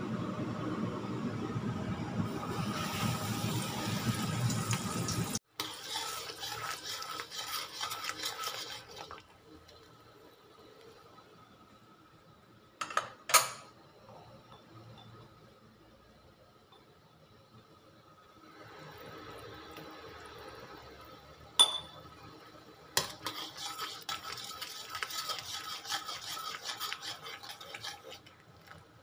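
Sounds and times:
chicken sizzling in hot oil: 2.3s - 10.8s, 18.4s - 29.0s
garlic and sauces sizzling: 2.3s - 11.6s, 18.6s - 29.0s
spatula stirring in wok: 5.5s - 10.0s, 22.9s - 29.0s.

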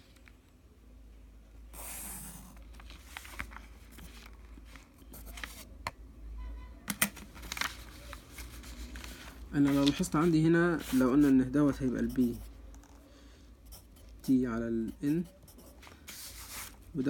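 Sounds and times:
pen scratching on paper: 9.7s - 12.5s, 13.6s - 16.8s.

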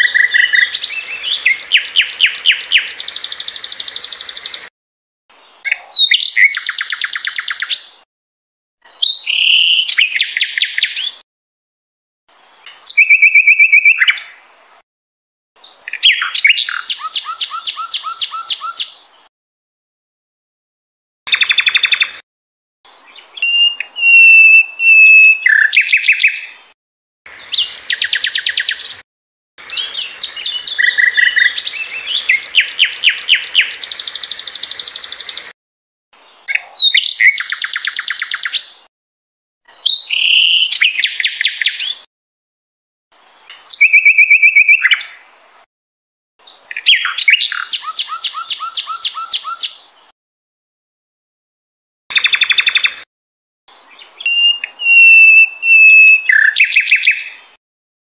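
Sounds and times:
songbird singing: 0.0s - 4.7s, 5.3s - 8.0s, 8.9s - 11.2s, 12.3s - 14.8s, 15.6s - 19.3s, 21.3s - 22.2s, 22.9s - 29.0s, 29.6s - 35.5s, 36.2s - 38.9s, 39.7s - 42.1s, 43.2s - 45.4s, 46.4s - 50.1s, 52.1s - 53.1s, 53.7s - 57.6s.

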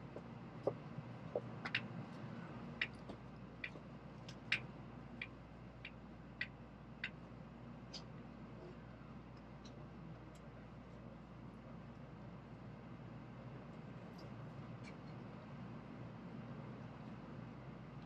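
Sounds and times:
low train cabin hum: 0.0s - 18.0s
light sharp ticks: 2.8s - 7.2s, 7.9s - 8.1s.

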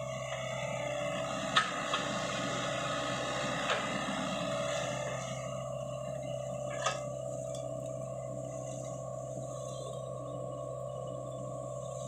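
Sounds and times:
excavator diesel engine running: 0.0s - 12.0s
hydraulic whine: 0.0s - 12.0s.

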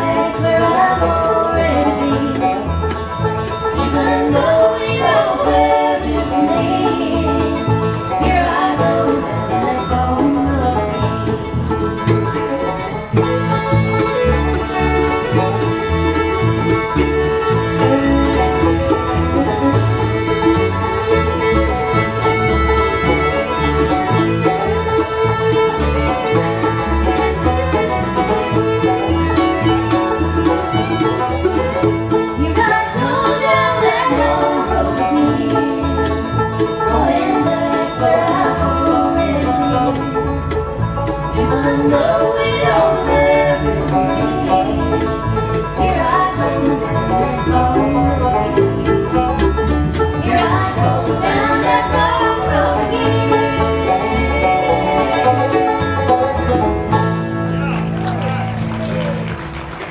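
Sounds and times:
voices singing in harmony: 0.0s - 2.8s, 3.7s - 10.8s, 32.4s - 40.1s, 41.3s - 48.4s, 50.2s - 56.0s
bluegrass band playing: 0.0s - 59.9s
fiddle lead: 0.0s - 59.9s.

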